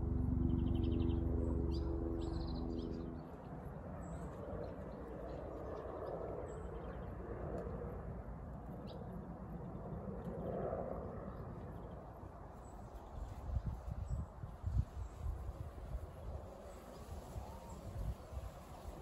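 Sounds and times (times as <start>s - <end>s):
steady low rush: 0.0s - 4.6s.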